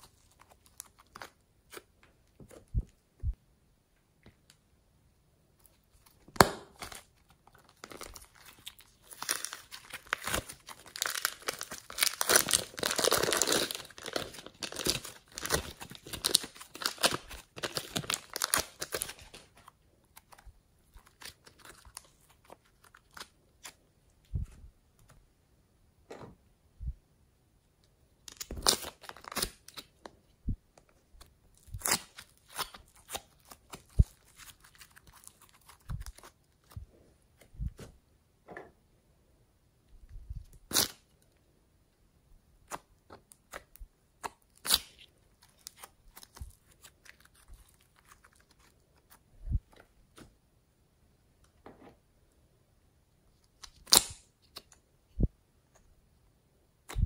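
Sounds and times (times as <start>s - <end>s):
clay and slime crackling: 28.2s - 38.0s, 42.6s - 50.4s.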